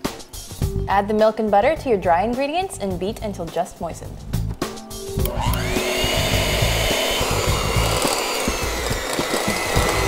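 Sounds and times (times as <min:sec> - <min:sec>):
electric hand mixer whining: 0:05.2 - 0:10.0.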